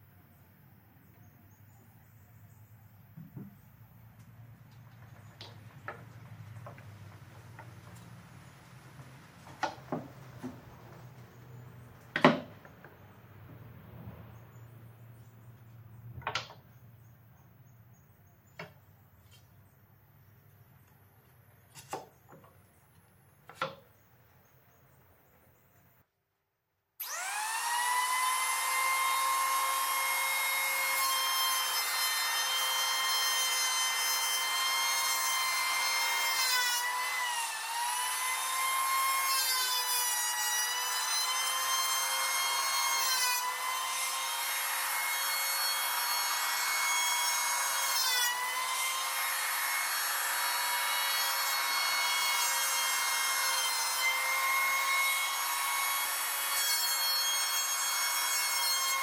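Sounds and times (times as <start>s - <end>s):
electric planer whining: 27.0s - 59.0s
planer shaving wood: 27.0s - 59.0s.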